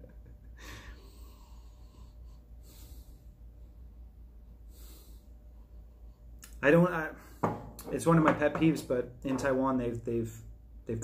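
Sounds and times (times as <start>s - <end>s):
faint airy inhales: 0.6s - 3.9s, 4.5s - 6.4s.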